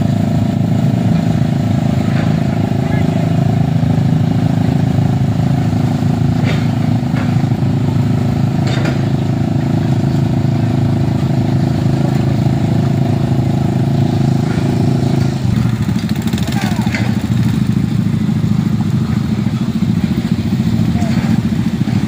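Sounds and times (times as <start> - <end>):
motorcycle engines at low revs: 0.0 - 22.0
faint voices: 2.5 - 3.4, 16.4 - 17.2, 20.7 - 21.5.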